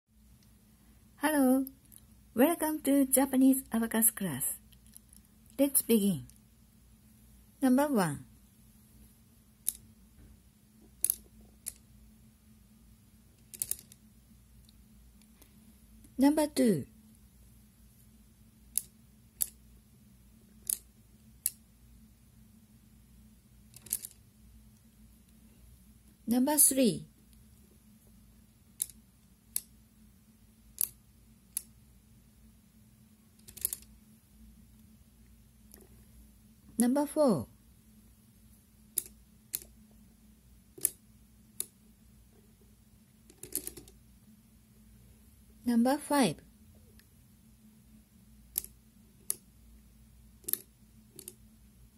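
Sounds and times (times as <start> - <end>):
abacus beads clicking: 4.7 - 5.3, 9.6 - 9.9, 10.9 - 12.0, 13.4 - 15.4, 18.6 - 19.6, 20.5 - 21.7, 23.7 - 24.2, 28.7 - 29.8, 30.7 - 31.8, 33.3 - 33.9, 38.8 - 39.8, 40.7 - 41.8, 43.2 - 44.0, 48.5 - 49.5, 50.4 - 51.4.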